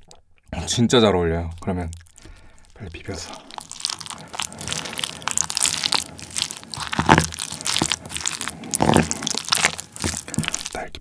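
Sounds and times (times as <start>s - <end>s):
wooden spoon scraping ceramic bowl: 4.0s - 10.7s.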